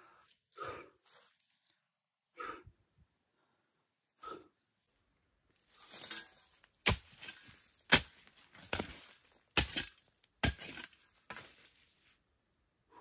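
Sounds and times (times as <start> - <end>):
scraping and rustling of earth: 5.5 - 12.3
spade chopping into soil: 6.8 - 11.6.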